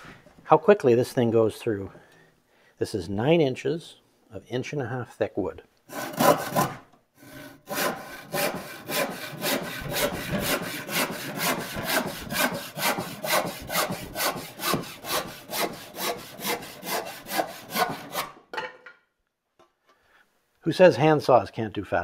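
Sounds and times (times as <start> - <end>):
hand saw cutting wood: 5.9 - 18.4.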